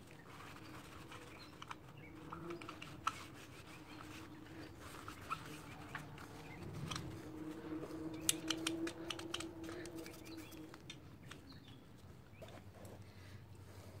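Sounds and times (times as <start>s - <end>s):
small clicks and taps: 8.2s - 12.6s.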